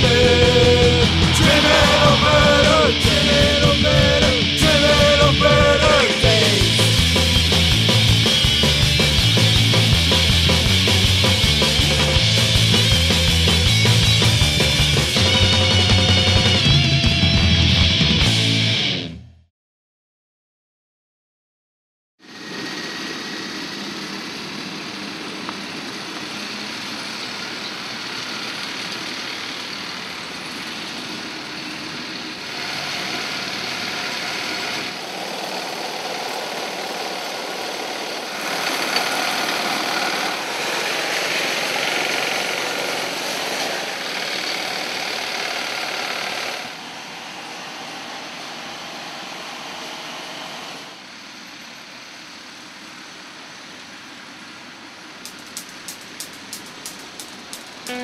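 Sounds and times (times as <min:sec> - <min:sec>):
ride-on lawn mower engines: 0:00.0 - 0:17.6, 0:22.2 - 0:58.0.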